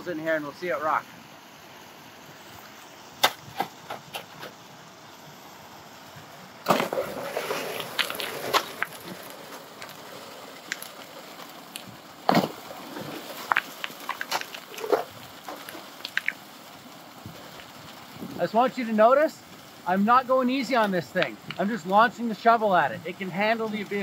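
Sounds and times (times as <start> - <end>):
spraying water: 0.0 - 24.0
gravel thrown into hopper: 6.6 - 16.4
stones rattling and clicking: 7.3 - 10.0, 13.1 - 16.4.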